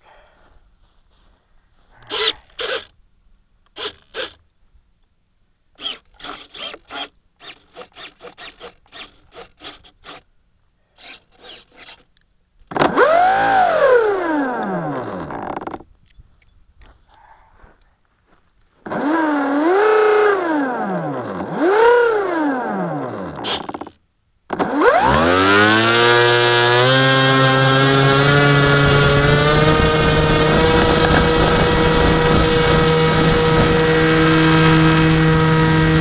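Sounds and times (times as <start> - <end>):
short scraping strokes: 2.0 - 2.9, 11.0 - 12.1
electric motor whine: 2.1 - 2.9, 12.8 - 15.8, 18.9 - 36.0.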